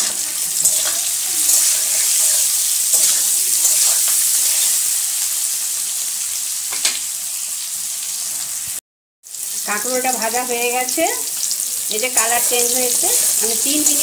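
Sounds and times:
spatula scraping pan: 0:00.0 - 0:04.8
vegetables frying in oil: 0:00.0 - 0:14.0.

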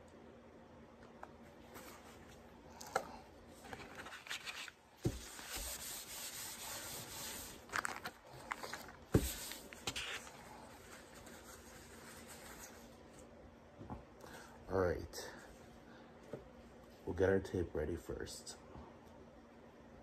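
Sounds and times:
paper towel rustling: 0:03.5 - 0:13.3.

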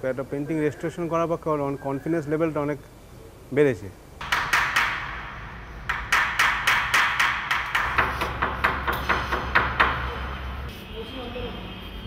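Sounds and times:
hammer tapping: 0:04.2 - 0:10.2.

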